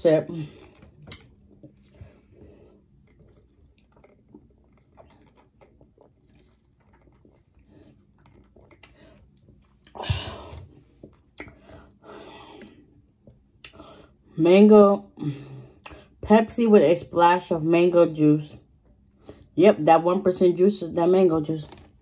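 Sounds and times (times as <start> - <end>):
lip and mouth sounds: 2.9 - 10.0, 11.1 - 11.8.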